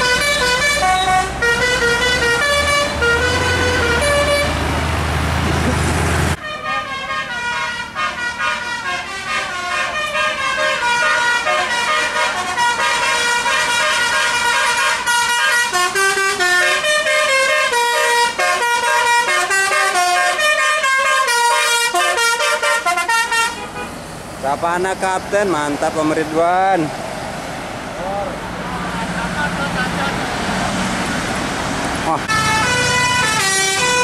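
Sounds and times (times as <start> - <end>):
bus horn playing a tune: 0.0 - 4.7, 6.3 - 24.0, 32.3 - 34.0.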